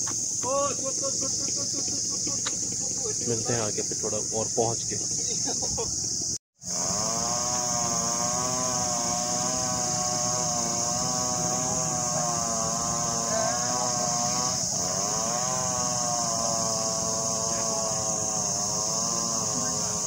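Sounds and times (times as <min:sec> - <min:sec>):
steady hiss: 0:00.0 - 0:20.0
car engine revving while driving: 0:06.7 - 0:20.0.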